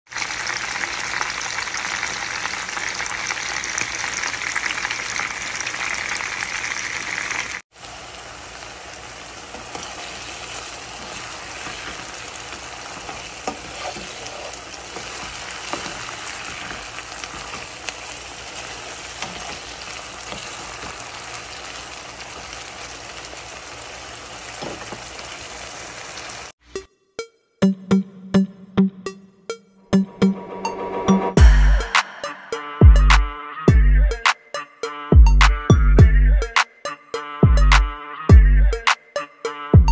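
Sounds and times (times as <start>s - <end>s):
fish frying in hot oil: 0.1s - 26.6s
vegetables sauteing in a pan: 0.1s - 26.6s.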